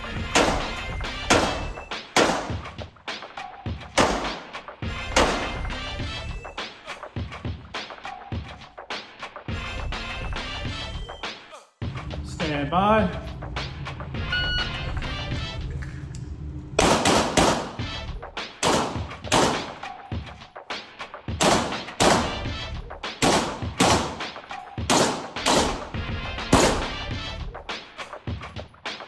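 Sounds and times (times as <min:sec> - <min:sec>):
pistol shots echoing indoors: 0:00.2 - 0:02.6, 0:04.0 - 0:05.7, 0:16.8 - 0:17.8, 0:18.6 - 0:19.8, 0:21.3 - 0:22.5, 0:23.2 - 0:27.0.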